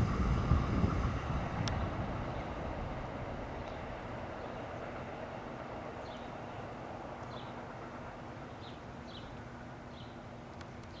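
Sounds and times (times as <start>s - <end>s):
faint hum: 0.0s - 11.0s
low outdoor rumble: 0.0s - 11.0s
small bird chirping: 7.2s - 7.6s, 8.5s - 10.2s.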